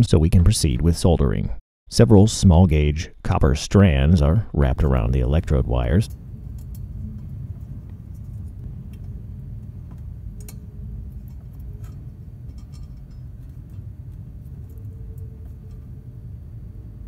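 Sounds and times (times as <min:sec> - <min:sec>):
low background rumble: 0:03.9 - 0:17.0
wire twisting clicks: 0:06.1 - 0:16.0.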